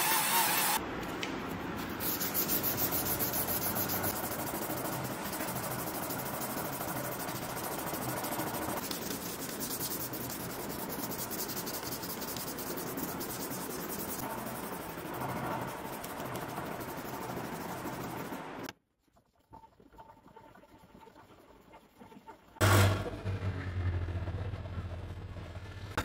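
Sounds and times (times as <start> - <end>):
sandpaper rubbing on steel: 1.9 - 18.4.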